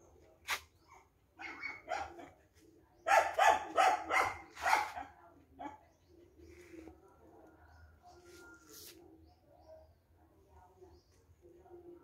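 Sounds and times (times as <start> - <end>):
dog barking: 1.4 - 2.4, 3.0 - 5.8.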